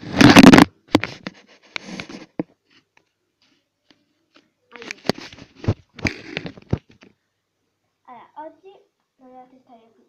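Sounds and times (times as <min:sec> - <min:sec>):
device handling clicks and rustles: 0:04.3 - 0:07.2.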